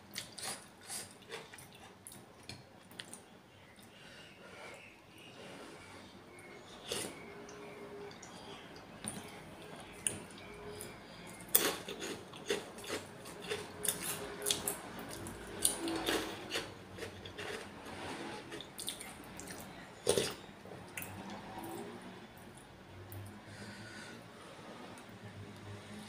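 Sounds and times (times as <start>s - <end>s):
chewing and mouth noises: 9.1s - 17.7s.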